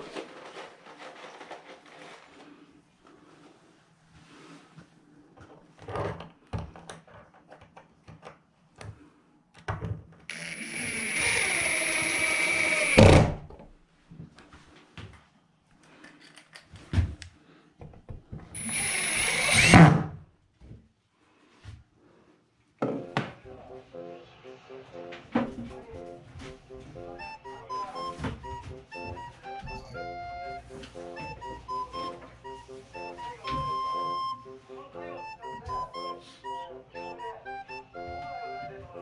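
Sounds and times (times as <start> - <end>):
power drill running: 10.3 - 13.3, 18.6 - 19.9.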